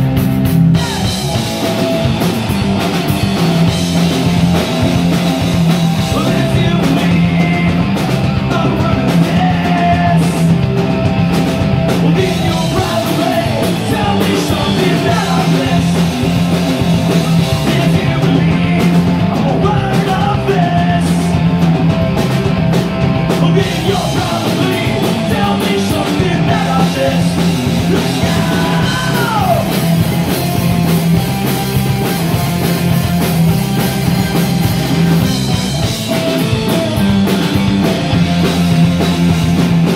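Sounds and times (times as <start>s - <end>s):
bass guitar: 0.0s - 39.9s
drum kit: 0.0s - 39.9s
electric guitar: 0.0s - 39.9s
singer shouting and singing: 0.6s - 1.5s, 5.9s - 10.6s, 12.0s - 21.5s, 23.3s - 30.2s.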